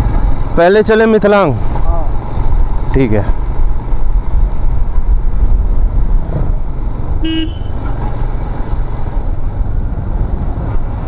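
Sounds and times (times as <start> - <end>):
wind rumble on microphone: 2.0 - 11.0
vehicle horn toot: 7.2 - 8.2.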